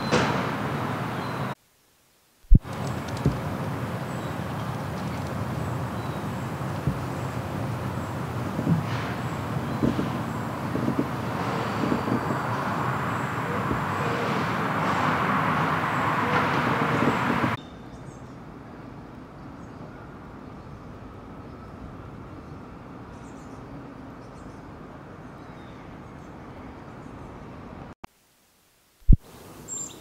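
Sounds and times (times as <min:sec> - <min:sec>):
road traffic noise: 0:00.0 - 0:01.6, 0:02.5 - 0:28.0
quiet outdoor hum: 0:00.0 - 0:30.0
faint high bird chirps: 0:01.1 - 0:01.6, 0:29.6 - 0:30.0.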